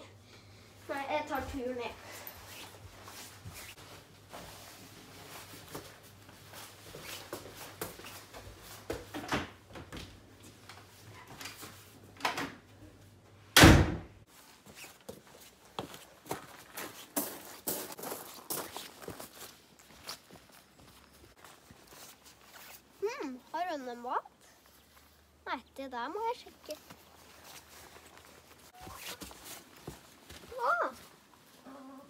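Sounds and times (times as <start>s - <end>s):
footsteps walking outdoors: 0.9s - 9.1s, 14.2s - 31.9s
boots scuffing on tiled floor: 1.4s - 9.1s, 14.3s - 22.9s, 26.7s - 31.3s
wooden door slamming: 13.6s - 14.1s.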